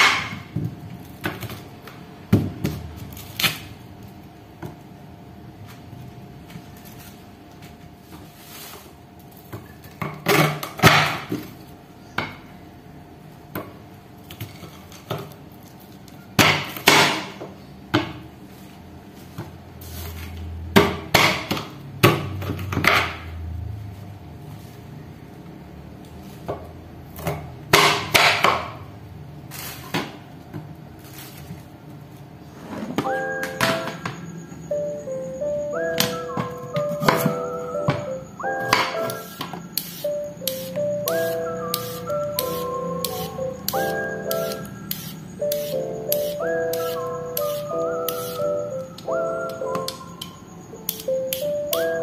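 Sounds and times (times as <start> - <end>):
knife chopping on wooden board: 38.7 - 48.4.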